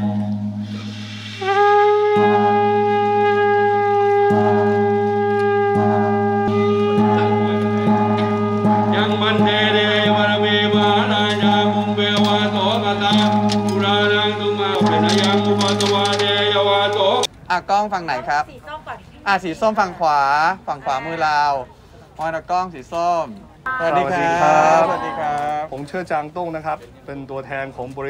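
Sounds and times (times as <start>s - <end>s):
low drone: 0.0s - 3.1s
wind instrument melody: 0.0s - 17.3s, 23.7s - 25.5s.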